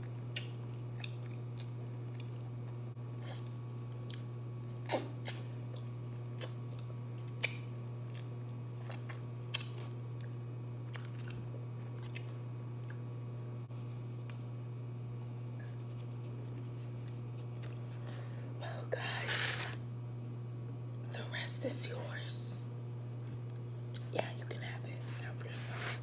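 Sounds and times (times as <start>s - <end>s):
low electrical hum: 0.0s - 26.0s
chewing: 0.3s - 2.8s, 3.4s - 13.0s.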